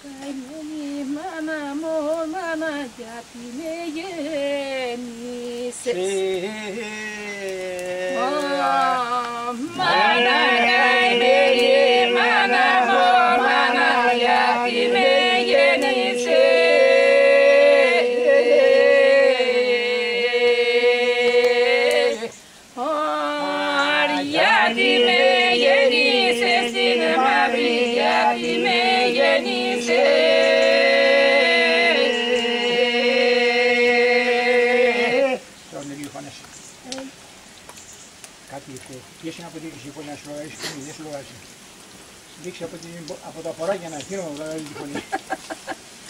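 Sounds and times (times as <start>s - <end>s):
group singing with drone: 3.5s - 35.6s.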